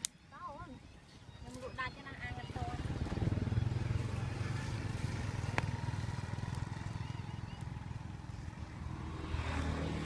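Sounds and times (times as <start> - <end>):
small engine running: 2.3 - 10.0.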